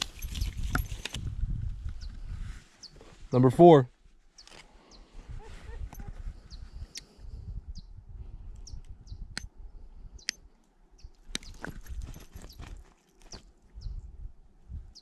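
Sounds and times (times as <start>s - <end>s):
small birds chirping: 2.8s - 3.1s, 4.3s - 14.1s.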